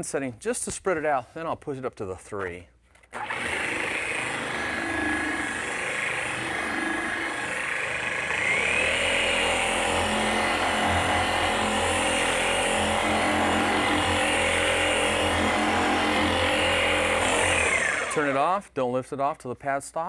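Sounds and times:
car polisher whining: 0:03.2 - 0:18.4.

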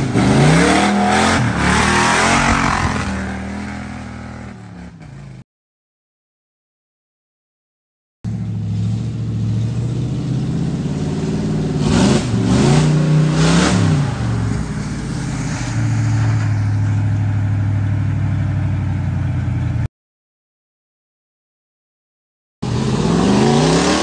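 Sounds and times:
pickup truck engine revving: 0:00.0 - 0:05.2, 0:08.3 - 0:16.3, 0:22.6 - 0:24.0.

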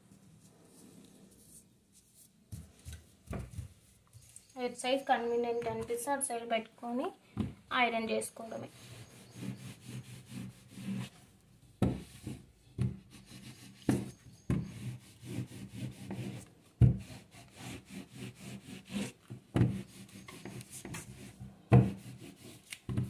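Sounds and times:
iron scraping across cloth: 0:08.5 - 0:11.2.

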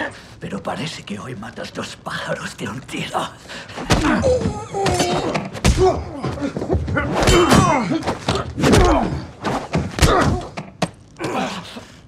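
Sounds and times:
fight thuds and knocks: 0:03.8 - 0:11.0
men grunting: 0:03.9 - 0:09.3, 0:11.2 - 0:11.9.

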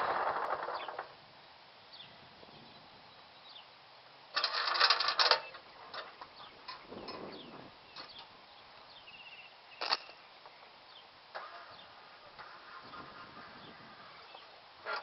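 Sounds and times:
loud metallic rattle: 0:00.0 - 0:01.2, 0:04.4 - 0:07.2
faint bird chirps: 0:05.4 - 0:14.6.

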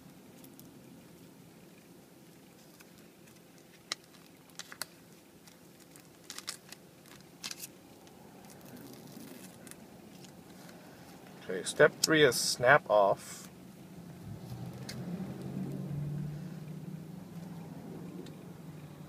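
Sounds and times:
faint steady hum: 0:00.0 - 0:19.0
plastic crinkling and clicking: 0:02.6 - 0:10.8.

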